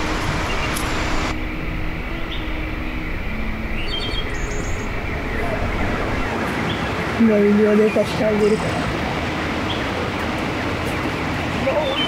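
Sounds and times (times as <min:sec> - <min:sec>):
high bird chirps: 0:00.0 - 0:01.3, 0:02.2 - 0:07.0
steady rushing outdoor noise: 0:00.0 - 0:12.0.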